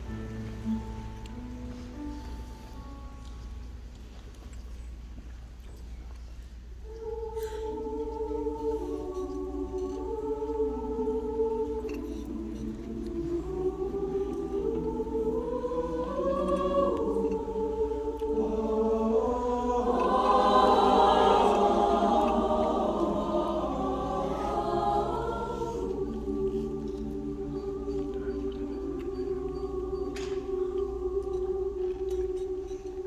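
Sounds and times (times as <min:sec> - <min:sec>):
mixed choir singing: 0:06.8 - 0:33.0.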